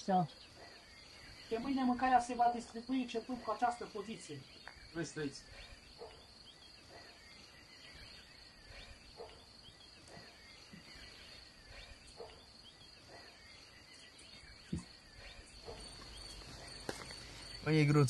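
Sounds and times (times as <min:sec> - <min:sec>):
crickets trilling: 0:00.0 - 0:18.0.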